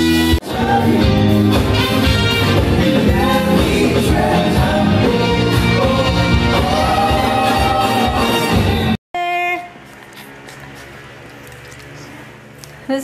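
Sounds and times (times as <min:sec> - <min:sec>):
live band playing upbeat song: 0:00.0 - 0:09.0
lead singer: 0:00.1 - 0:08.9.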